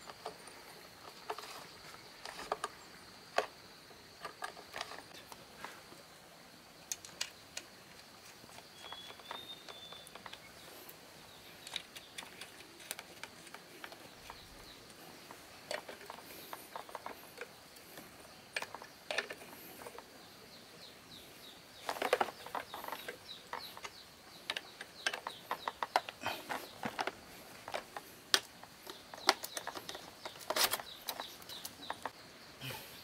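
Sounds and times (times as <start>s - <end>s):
light clicks and knocks: 21.8s - 32.2s.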